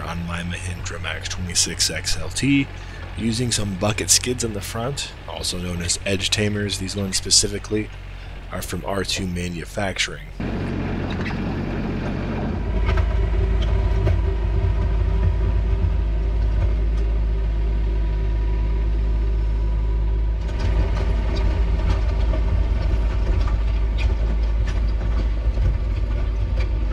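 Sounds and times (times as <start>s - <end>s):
tractor diesel engine running: 0.0s - 26.9s
clicks and rattles: 20.4s - 26.9s.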